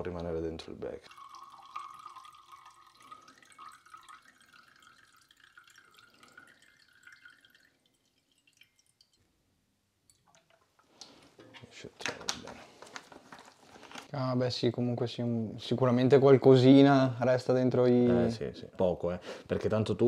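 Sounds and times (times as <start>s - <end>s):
liquid trickling into glass beaker: 1.0s - 9.3s, 10.1s - 11.2s.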